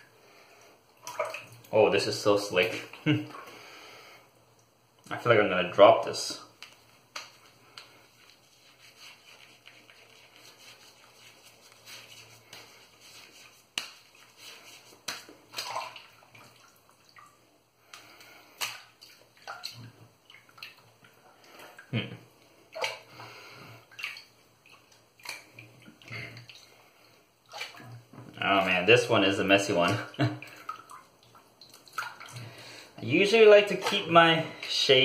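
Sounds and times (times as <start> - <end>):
shaving lather squelching: 6.6 - 16.6.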